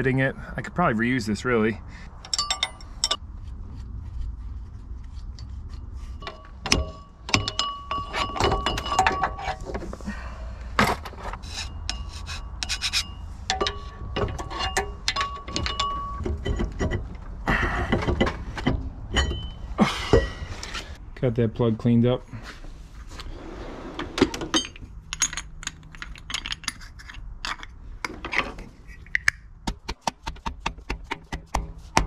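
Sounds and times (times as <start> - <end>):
metal parts clinking and knocking: 2.2 - 3.2, 6.2 - 10.1, 10.8 - 21.0, 24.3 - 29.4.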